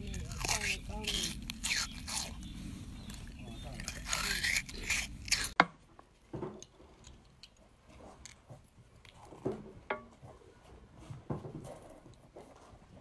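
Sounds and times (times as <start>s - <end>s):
melon baller scraping beetroot: 0.0s - 5.6s.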